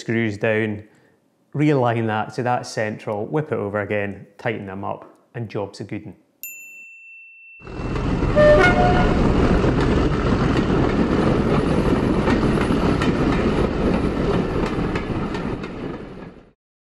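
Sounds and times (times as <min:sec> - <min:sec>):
wheels clicking over rails: 0:07.7 - 0:16.4
train rumbling: 0:07.7 - 0:16.6.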